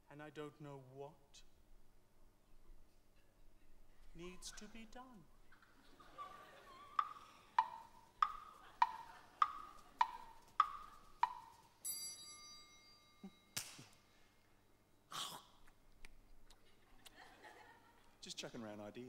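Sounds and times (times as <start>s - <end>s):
wood blocks knocking: 7.0s - 11.7s
held ringing note: 10.7s - 13.6s.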